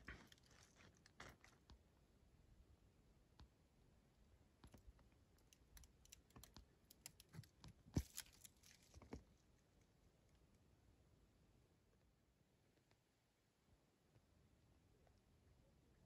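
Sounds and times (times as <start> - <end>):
faint clicks and crackles: 4.6 - 10.6.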